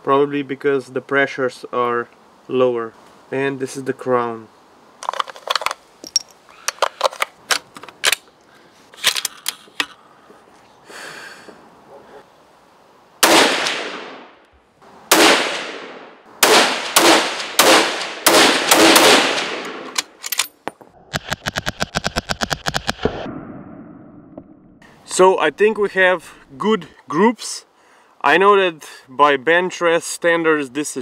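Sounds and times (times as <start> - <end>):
rifle shots: 13.2 - 14.3, 15.1 - 20.2.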